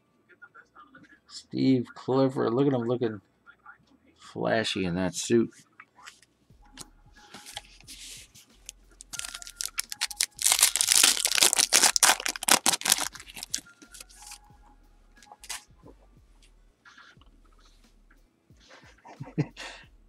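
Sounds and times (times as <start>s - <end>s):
foil wrapper crinkling and tearing: 9.0s - 14.4s.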